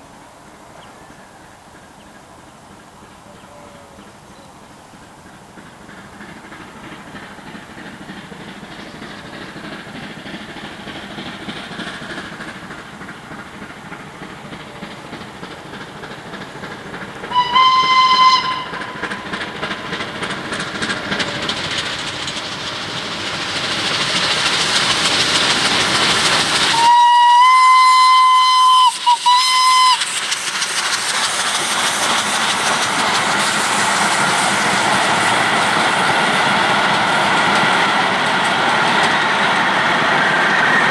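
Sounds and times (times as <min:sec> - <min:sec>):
steam locomotive puffing and hissing: 0:00.0 - 0:40.9
carriages clicking over rail joints: 0:04.9 - 0:39.5
steam whistle blasts: 0:17.3 - 0:19.1, 0:26.7 - 0:30.2.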